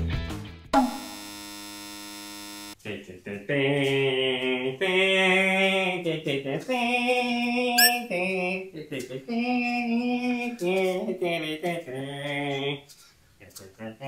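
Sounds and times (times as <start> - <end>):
rising electronic chirp: 7.8 - 8.0.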